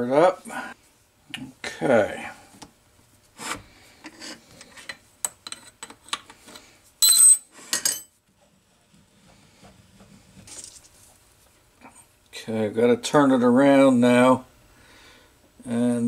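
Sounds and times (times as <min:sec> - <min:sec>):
loud ringing metal clink: 0:07.0 - 0:08.0.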